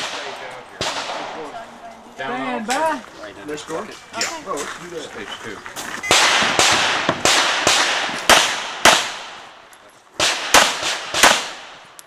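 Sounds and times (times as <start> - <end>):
pistol shots with echo: 0.0 - 1.6, 6.1 - 9.6, 10.2 - 11.9.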